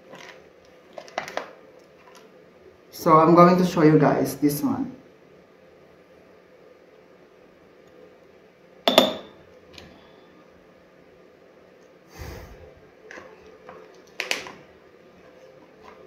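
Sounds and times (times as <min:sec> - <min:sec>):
metal spoon clinking on glass jar: 0:08.9 - 0:09.3.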